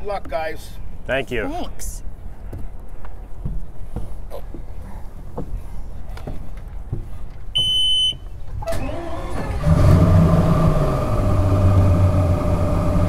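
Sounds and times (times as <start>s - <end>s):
warning horn beep: 7.6s - 8.2s
outboard motor starting and idling: 8.6s - 13.0s.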